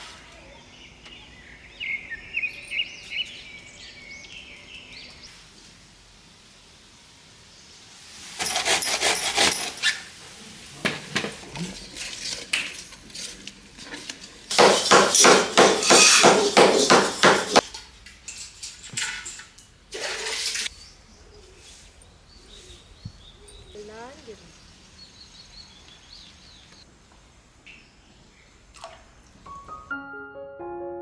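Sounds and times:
kitchen noise: 0:08.2 - 0:20.8.

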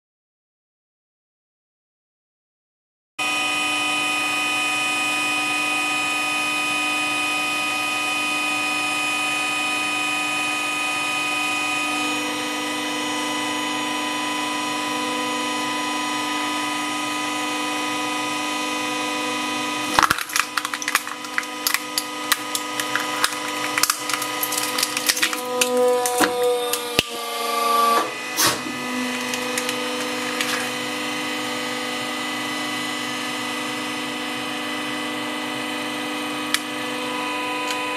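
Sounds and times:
hydraulic pump motor humming: 0:18.8 - 0:32.4
phone cracking and crunching: 0:19.9 - 0:27.2, 0:29.1 - 0:30.9.

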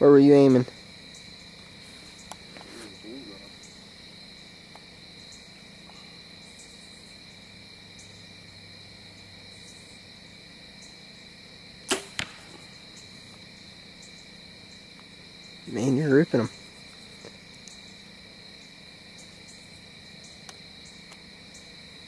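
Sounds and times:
crickets chirping: 0:00.0 - 0:22.0
bow shot crack: 0:11.8 - 0:13.0
arrow hitting foam target: 0:11.9 - 0:12.6.

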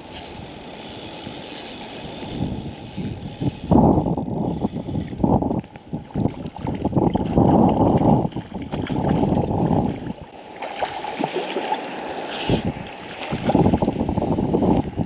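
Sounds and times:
wind buffeting microphone: 0:02.0 - 0:10.3, 0:12.5 - 0:15.0
small waves splashing on rocks: 0:08.6 - 0:13.6.

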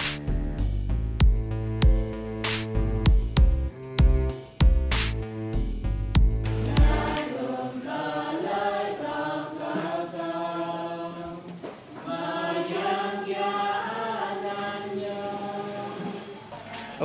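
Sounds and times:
group chanting prayers: 0:06.7 - 0:17.0.

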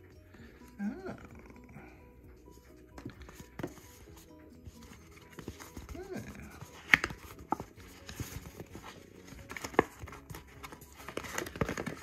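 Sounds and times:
hands handling cardboard box: 0:02.9 - 0:12.0.

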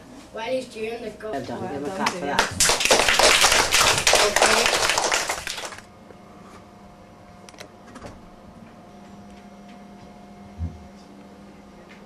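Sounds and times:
children applauding: 0:02.4 - 0:05.9.

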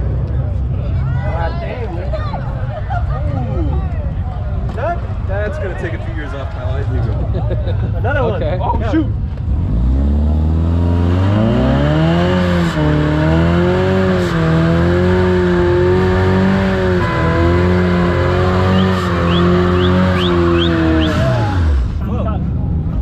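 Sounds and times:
engine revving high: 0:09.4 - 0:22.0
tyres squealing: 0:16.7 - 0:21.8.

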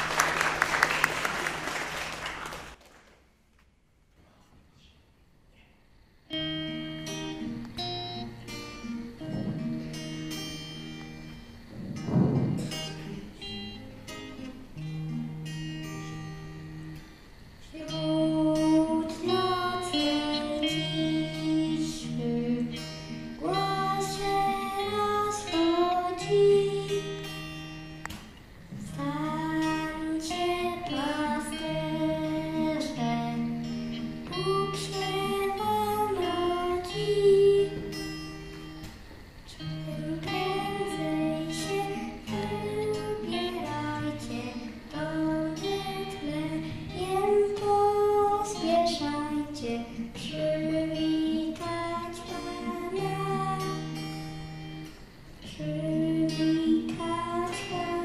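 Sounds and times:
strummed acoustic guitar: 0:06.3 - 0:58.0
person singing: 0:17.7 - 0:27.2, 0:28.9 - 0:38.0, 0:39.6 - 0:54.0, 0:55.5 - 0:58.0.

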